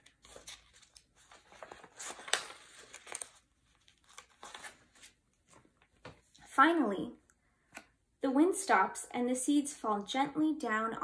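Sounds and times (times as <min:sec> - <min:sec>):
book pages rustling: 0:00.0 - 0:06.5.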